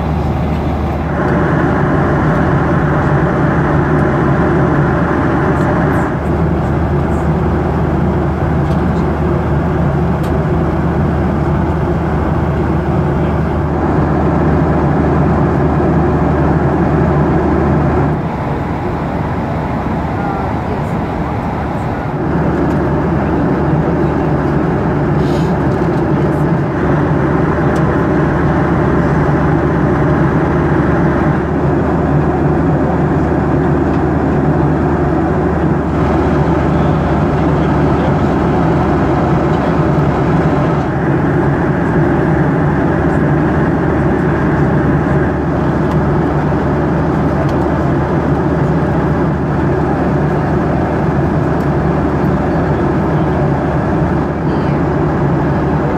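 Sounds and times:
low hum of jet engines: 0.0 - 55.9
air rushing over fuselage: 9.5 - 48.3.

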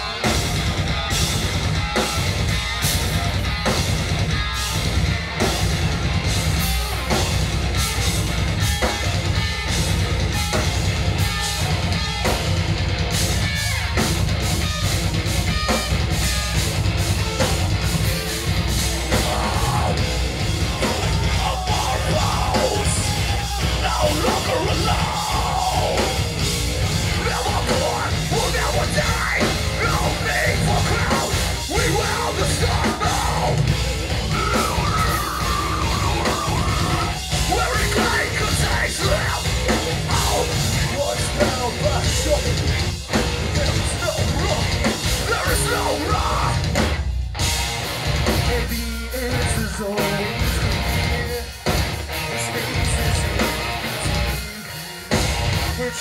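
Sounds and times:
heavy metal band playing: 0.0 - 56.0
vocalist yelling: 18.9 - 42.6, 43.5 - 46.7.

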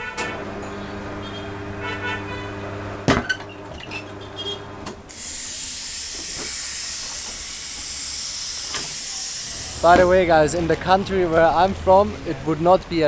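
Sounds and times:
compressed air hissing: 5.1 - 10.2.

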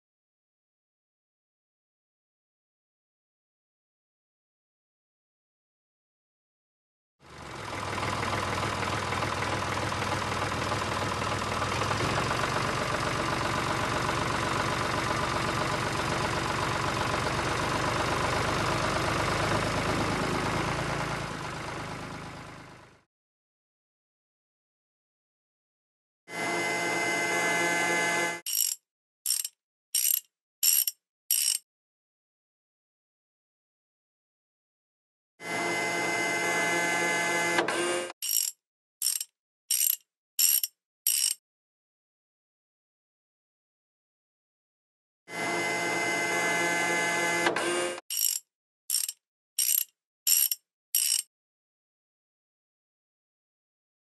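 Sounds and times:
dense mechanical clatter: 7.4 - 19.2
steady mechanical sound: 26.4 - 31.6, 35.5 - 41.4, 45.4 - 51.2.

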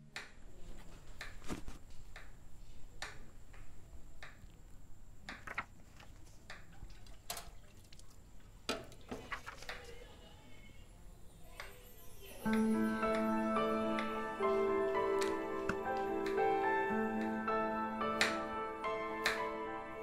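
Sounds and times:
paper rustling: 0.7 - 1.9, 5.3 - 10.0.

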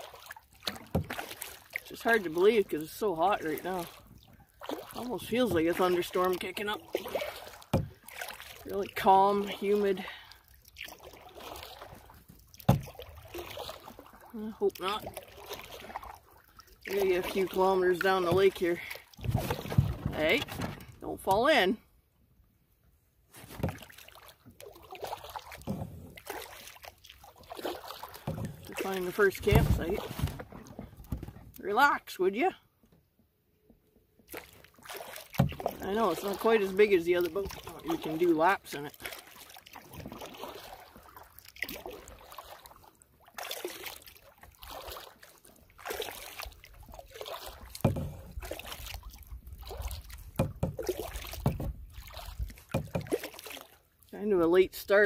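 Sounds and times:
paddle swishing in water: 0.0 - 21.8, 23.1 - 55.0
light knocks on canoe hull: 7.7 - 8.0, 12.6 - 13.1, 47.7 - 48.6, 50.3 - 53.3.

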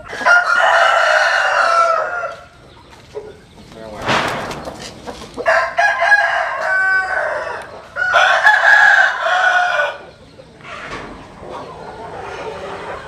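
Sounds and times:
rooster crowing: 0.0 - 2.6, 5.4 - 10.1.

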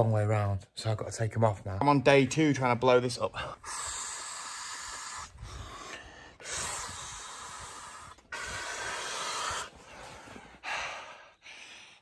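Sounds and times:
short breaths: 3.4 - 12.0
man blowing air into a valve: 3.6 - 9.8.

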